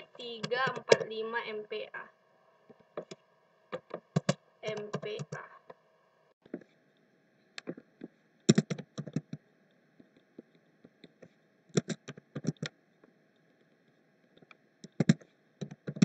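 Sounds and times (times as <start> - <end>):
faint steady hum: 0.0 - 16.0
keyboard typing: 0.4 - 1.1, 3.0 - 5.5, 8.5 - 9.4, 10.0 - 12.7, 14.4 - 16.0.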